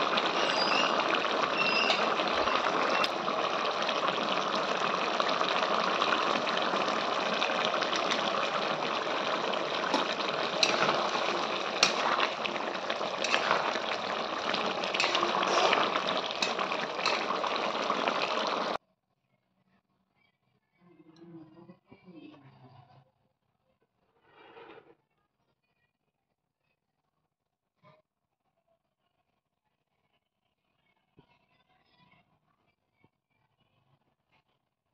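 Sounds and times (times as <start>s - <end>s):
spoon scraping a pot: 0.0s - 3.2s, 7.9s - 18.8s
curry bubbling and sizzling: 0.0s - 18.8s.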